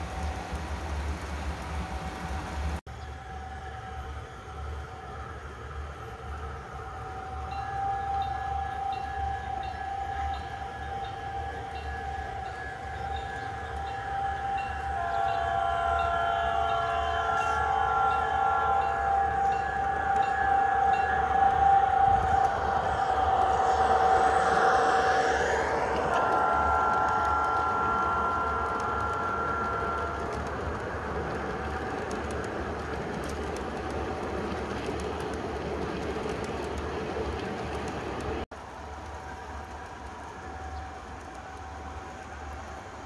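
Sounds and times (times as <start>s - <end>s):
model locomotive engine tone: 2.9s - 37.5s
multi-tone train horn: 3.1s - 32.6s.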